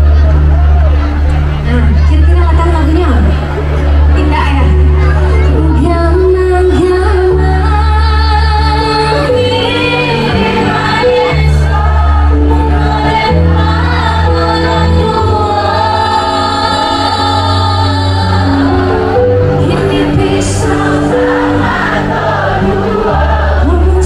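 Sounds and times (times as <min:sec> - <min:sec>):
amplified music with deep bass: 0:00.0 - 0:24.0
woman singing into microphone: 0:05.5 - 0:22.0, 0:22.6 - 0:24.0.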